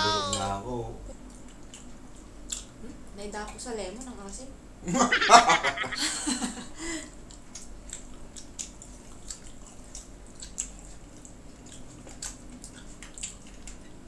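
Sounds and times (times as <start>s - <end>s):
wet chewing and lip-smacking: 1.1s - 4.1s, 7.2s - 14.0s.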